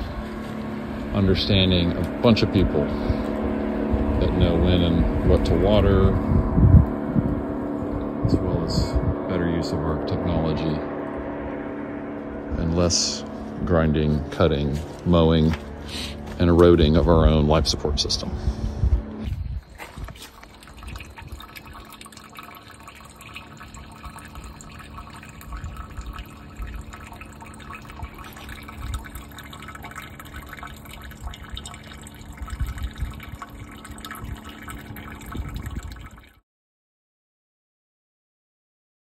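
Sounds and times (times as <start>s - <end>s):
faint steady hum: 0.0s - 36.4s
rainwater dripping and trickling: 19.7s - 36.4s.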